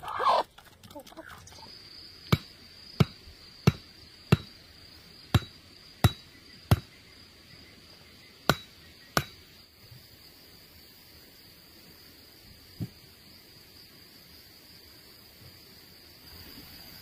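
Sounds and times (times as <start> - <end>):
high insect buzz: 1.4 - 17.0
sharp knocks: 2.3 - 4.6, 5.3 - 6.9, 8.5 - 9.4.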